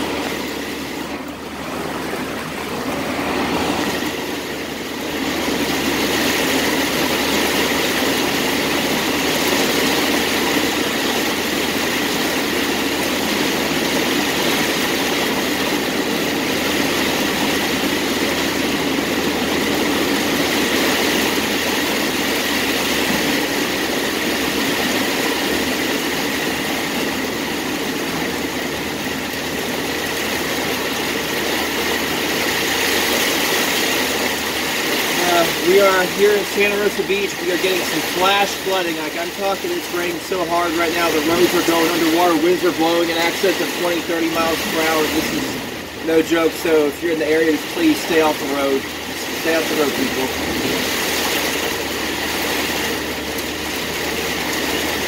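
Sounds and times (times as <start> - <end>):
heavy rain on car roof: 0.0 - 55.0
tyres spraying through water: 0.0 - 55.0.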